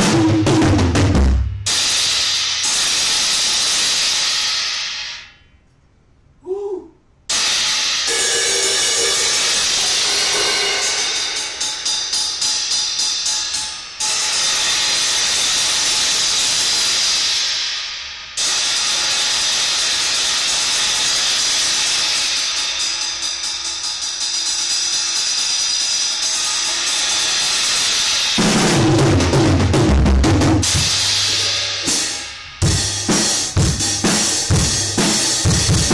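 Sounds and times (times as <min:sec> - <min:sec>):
drum kit played hard: 0:00.0 - 0:05.2, 0:07.3 - 0:35.9
quick repeated cymbal strikes: 0:01.6 - 0:05.4, 0:07.3 - 0:35.9
cymbals crashing: 0:07.3 - 0:29.4, 0:30.6 - 0:35.9.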